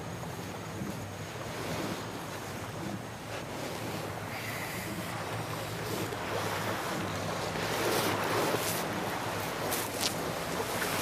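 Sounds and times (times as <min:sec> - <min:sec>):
ocean surf washing onto beach: 0:03.3 - 0:11.0.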